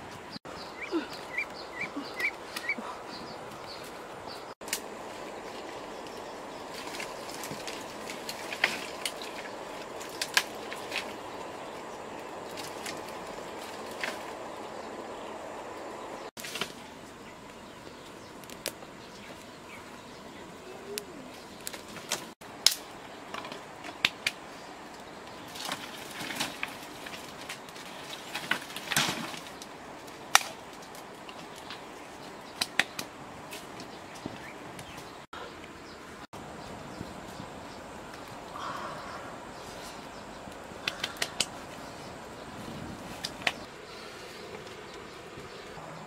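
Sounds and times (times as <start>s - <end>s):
dry sticks snapping and knocking: 4.6s - 11.3s, 12.4s - 14.4s, 16.4s - 16.8s, 18.0s - 19.4s, 21.0s - 35.0s, 40.5s - 41.8s, 43.1s - 43.7s.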